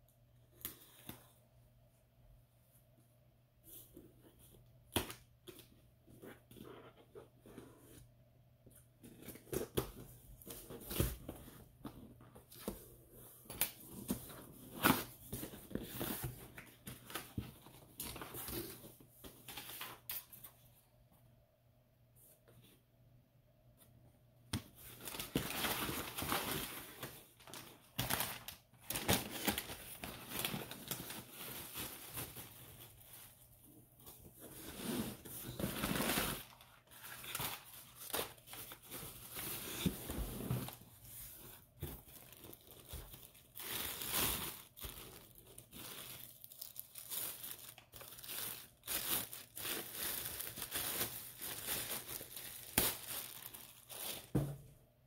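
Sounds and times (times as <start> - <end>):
plastic bags crinkling: 24.9 - 33.3, 42.0 - 54.4.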